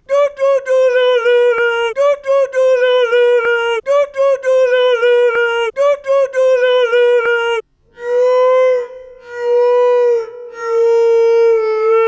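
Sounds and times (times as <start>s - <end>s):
man singing nonsense syllables: 0.0s - 7.6s.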